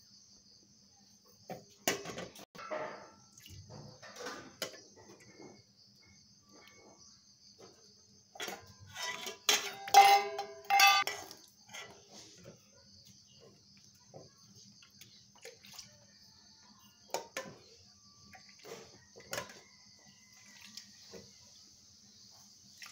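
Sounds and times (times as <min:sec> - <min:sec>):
metal ladle clanking on pots: 0:01.8 - 0:05.6, 0:08.3 - 0:12.6, 0:17.0 - 0:17.7, 0:18.3 - 0:19.6.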